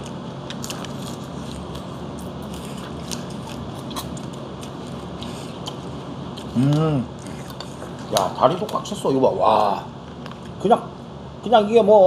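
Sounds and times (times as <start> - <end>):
chewing: 0.0 - 8.9.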